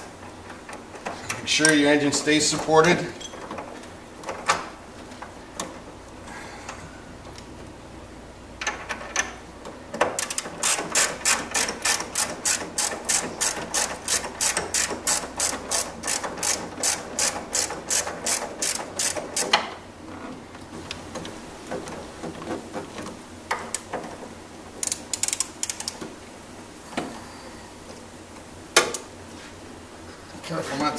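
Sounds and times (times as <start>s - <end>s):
ratchet clicking: 10.2s - 19.6s, 24.8s - 26.0s.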